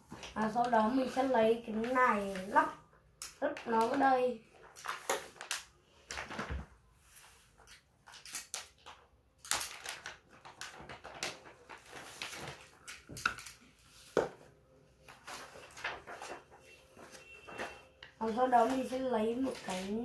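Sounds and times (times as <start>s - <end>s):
plastic building blocks clicking: 8.1s - 11.4s.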